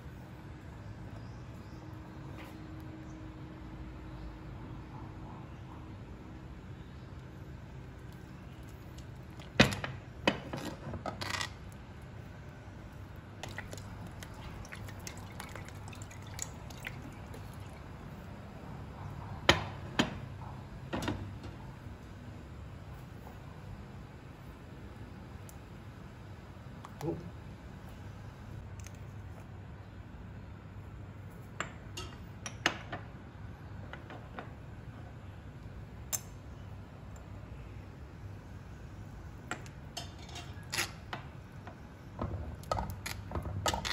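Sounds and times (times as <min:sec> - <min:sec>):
steady low hum: 0:00.0 - 0:43.9
liquid sloshing: 0:13.4 - 0:18.1
faint drips: 0:13.4 - 0:18.3.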